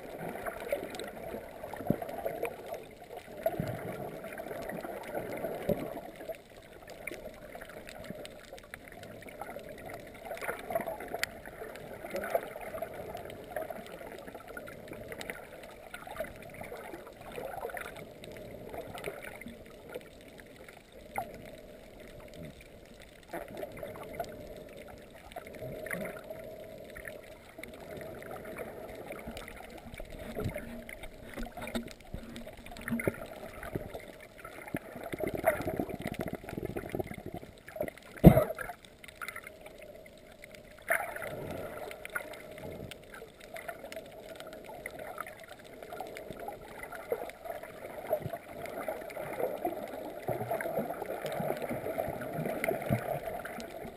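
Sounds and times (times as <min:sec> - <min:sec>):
muffled underwater rushing: 0:00.0 - 0:53.9
sharp clicks and pops: 0:29.2 - 0:44.7.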